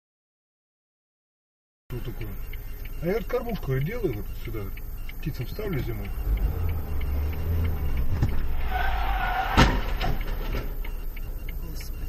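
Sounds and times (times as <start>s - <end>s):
car engine rumbling: 1.9s - 12.0s
tyres squealing: 5.3s - 10.9s.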